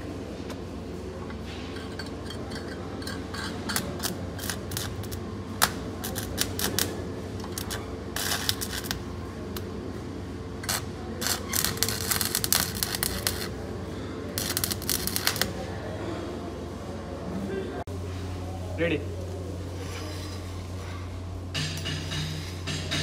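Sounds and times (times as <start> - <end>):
low electrical hum: 0.0 - 23.0
welding arc crackling and popping: 1.9 - 9.7, 10.6 - 13.6, 14.4 - 15.6.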